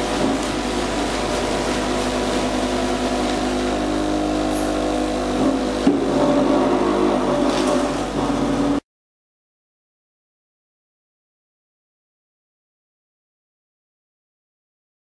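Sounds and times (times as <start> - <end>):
machinery humming: 0.0 - 8.8.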